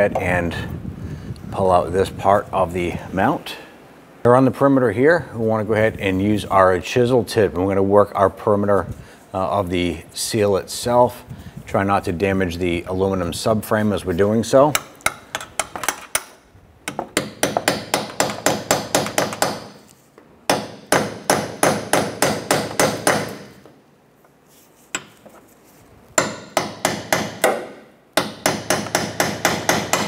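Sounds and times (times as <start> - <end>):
hammer tapping on steel chisel: 14.7 - 19.9, 24.9 - 25.3, 26.2 - 30.0.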